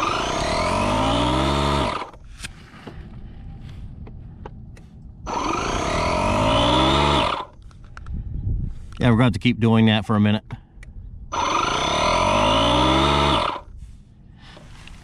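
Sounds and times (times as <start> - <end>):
air compressor running: 0.0 - 2.2, 5.3 - 7.6, 11.3 - 13.8.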